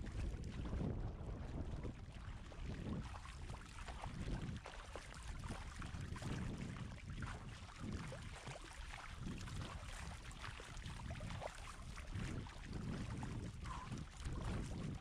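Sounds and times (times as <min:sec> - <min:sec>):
water rushing along kayak bow: 0:00.0 - 0:15.0.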